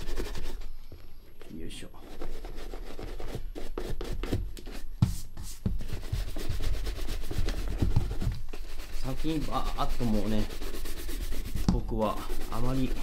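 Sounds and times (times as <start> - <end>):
shoe brush scrubbing leather boot: 6.0 - 13.0.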